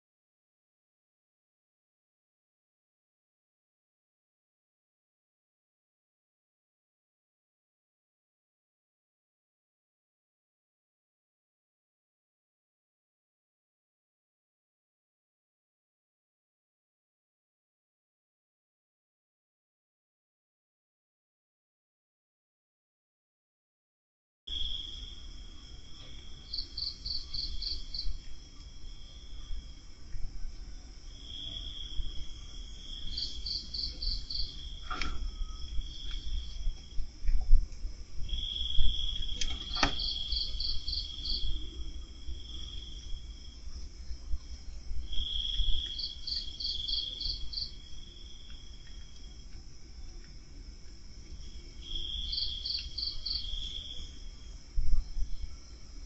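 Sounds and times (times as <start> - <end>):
insect trilling: 24.5 - 29.8, 31.0 - 37.4, 38.2 - 50.5, 51.4 - 56.0.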